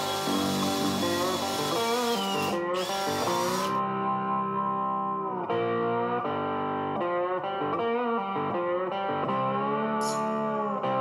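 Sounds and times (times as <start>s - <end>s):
guitar chords: 3.7s - 11.0s.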